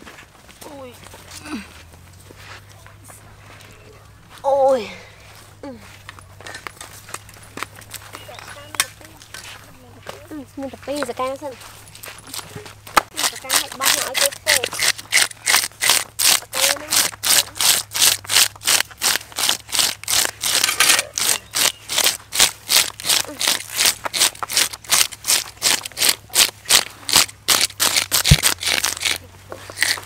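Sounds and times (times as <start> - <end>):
fish scaler scraping fish scales: 13.1 - 30.0.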